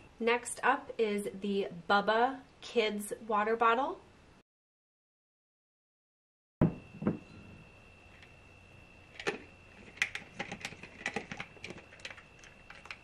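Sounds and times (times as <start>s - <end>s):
ceramic pitcher knocking on stone: 6.6s - 7.3s.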